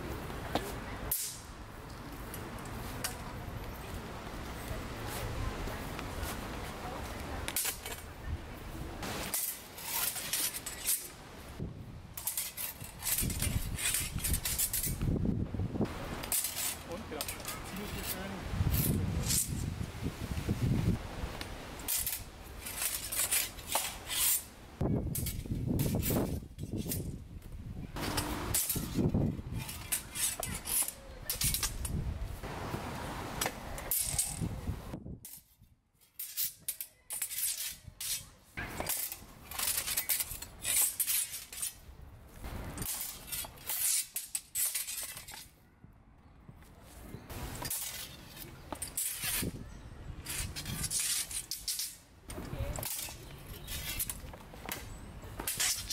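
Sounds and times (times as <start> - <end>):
steel swords and bucklers clashing: 0.6 - 1.5, 7.5 - 8.1, 9.0 - 11.2, 12.1 - 15.2, 16.2 - 19.7, 21.8 - 27.2, 27.9 - 32.0, 33.4 - 34.5, 35.2 - 45.6, 47.4 - 55.9.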